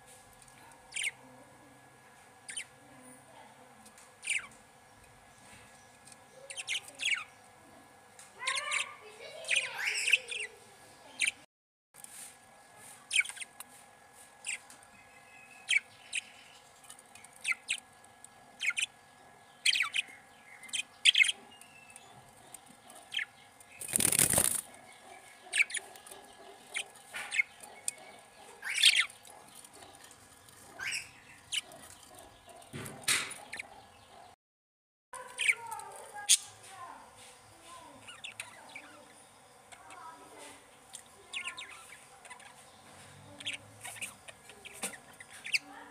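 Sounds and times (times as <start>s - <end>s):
budgerigars chirping: 0.9s - 1.2s, 2.4s - 2.8s, 4.2s - 4.6s, 6.4s - 7.3s, 8.4s - 11.4s, 13.1s - 13.6s, 14.4s - 16.6s, 17.2s - 17.9s, 18.6s - 30.1s, 30.7s - 34.3s, 38.0s - 40.2s, 41.3s - 45.8s.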